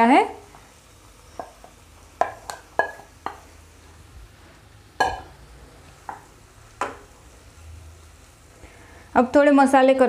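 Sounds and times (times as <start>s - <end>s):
utensils knocking on metal pans: 1.4s - 3.4s, 5.0s - 5.4s.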